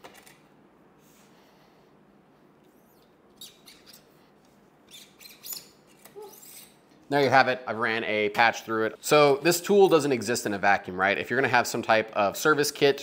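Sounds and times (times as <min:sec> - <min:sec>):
cleaning rod squeaky scrapes in barrel: 0:02.9 - 0:04.1, 0:04.9 - 0:06.8.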